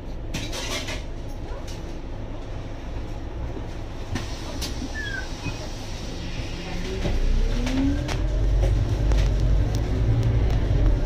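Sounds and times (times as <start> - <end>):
bus engine idling: 1.2 - 7.4.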